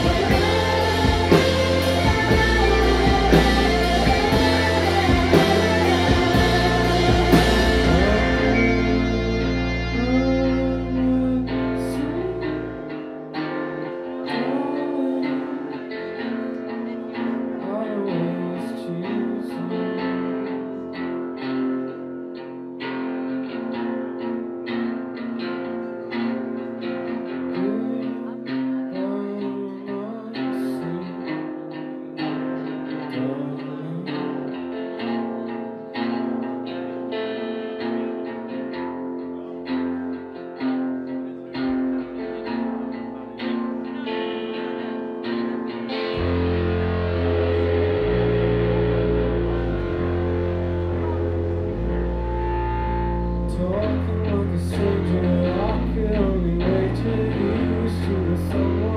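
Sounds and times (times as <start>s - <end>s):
low bass note: 0.0s - 12.8s, 46.1s - 58.9s
rock band playing: 0.0s - 27.8s, 34.3s - 58.9s.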